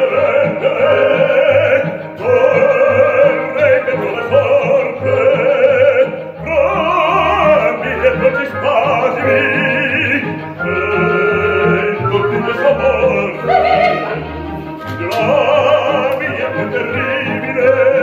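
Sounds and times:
operatic duet singing: 0.0 - 18.0
orchestral accompaniment: 0.0 - 18.0.

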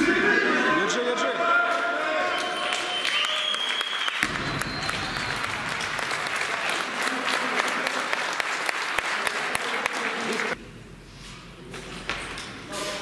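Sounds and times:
audience applauding: 2.3 - 10.6.

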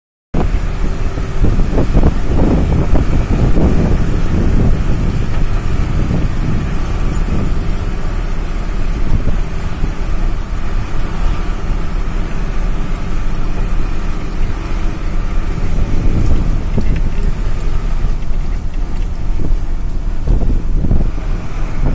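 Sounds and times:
wind buffeting microphone: 0.4 - 21.9.

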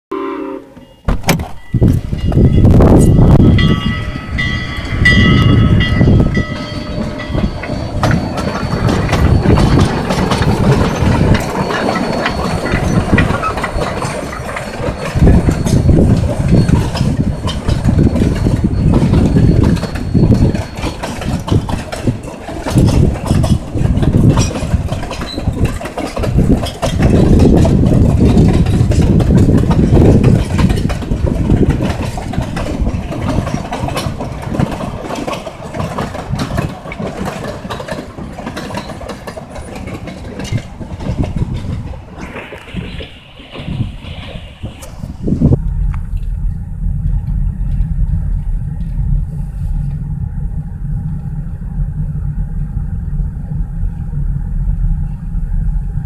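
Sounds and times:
high chord-like tone: 0.1 - 1.1
train cars rumbling on rails: 0.1 - 56.0.

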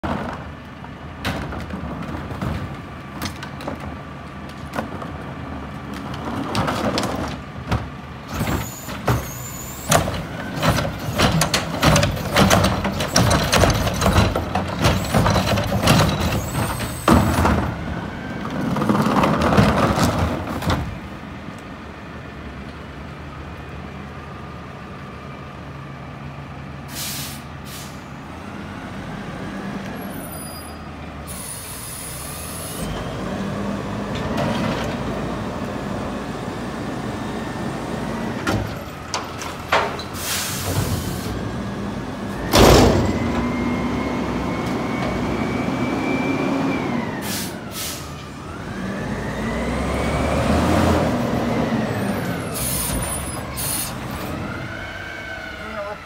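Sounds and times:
garbage truck diesel engine: 0.0 - 56.0
plastic carts clattering and banging: 6.0 - 9.3, 9.9 - 17.8, 18.5 - 20.9.

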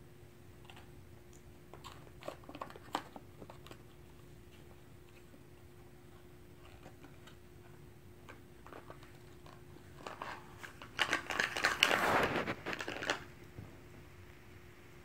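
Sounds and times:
crinkling handling noise: 1.7 - 14.0.

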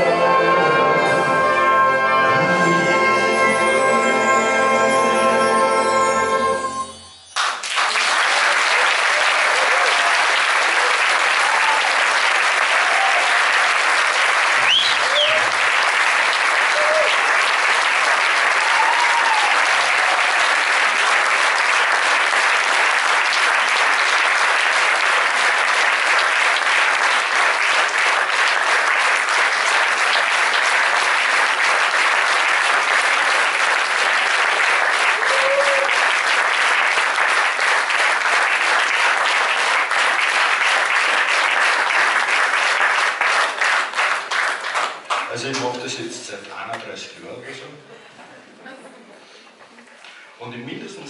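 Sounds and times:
audience applauding: 7.4 - 47.0.

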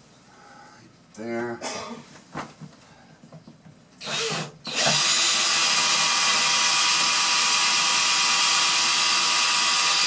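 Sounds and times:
cordless drill drilling wood: 4.0 - 10.0.

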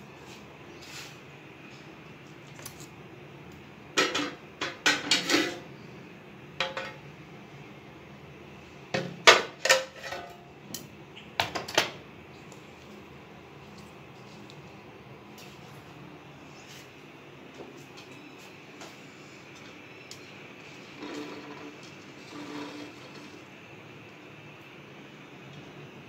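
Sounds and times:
dishes and utensils clattering: 4.0 - 5.7, 6.6 - 7.0, 9.0 - 10.4.

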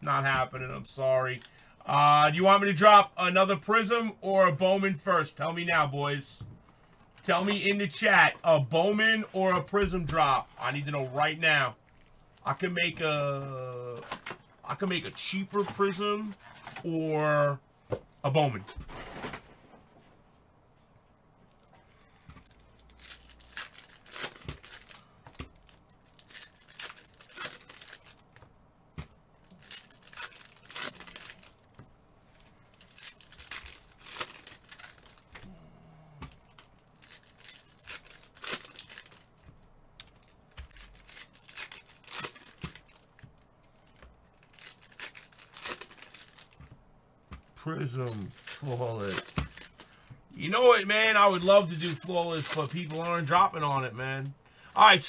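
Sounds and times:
plastic packaging crinkling: 22.0 - 35.4, 36.4 - 46.8, 47.4 - 53.6.

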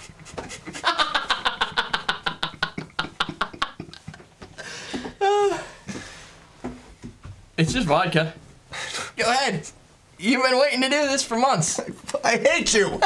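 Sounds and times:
men laughing hard: 0.0 - 4.5.

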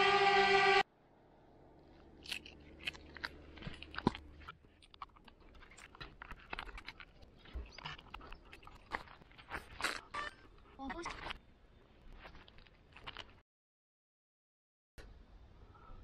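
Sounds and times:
drone hovering whine: 0.0 - 0.8.

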